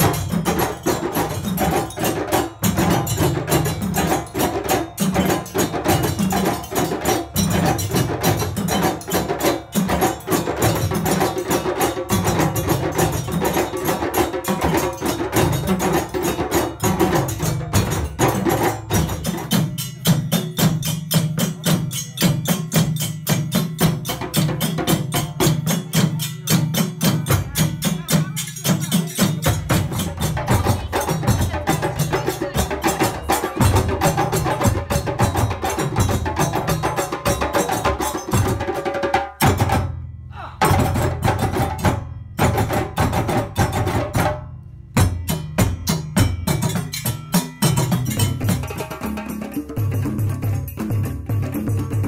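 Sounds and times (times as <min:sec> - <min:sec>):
drum ensemble playing: 0:00.0 - 0:52.0.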